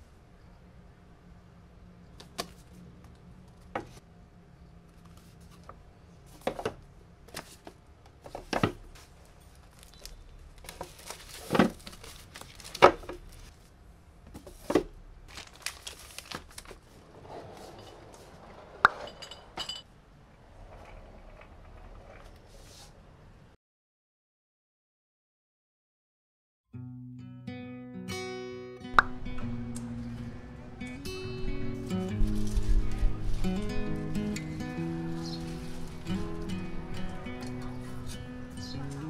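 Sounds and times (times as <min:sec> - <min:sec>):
clinking rattle: 0:19.0 - 0:19.9.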